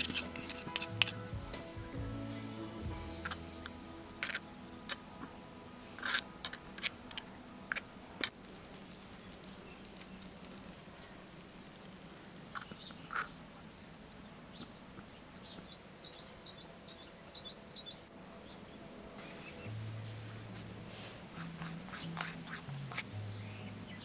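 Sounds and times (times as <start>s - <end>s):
small birds chirping: 7.2s - 19.8s.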